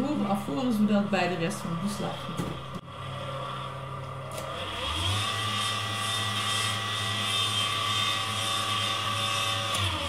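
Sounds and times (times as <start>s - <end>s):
stand mixer motor humming: 2.9s - 10.0s.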